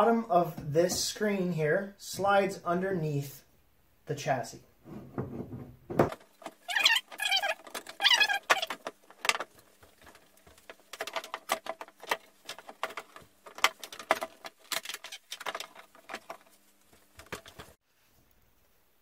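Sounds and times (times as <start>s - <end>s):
plastic parts clicking and scraping: 5.2s - 17.8s.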